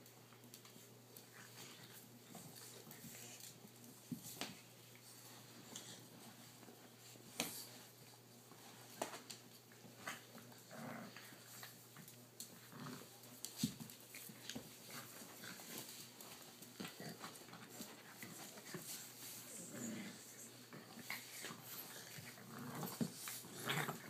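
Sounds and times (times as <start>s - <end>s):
dogs scuffling: 0.2s - 24.0s
dog growling softly: 9.8s - 13.3s, 14.1s - 24.0s.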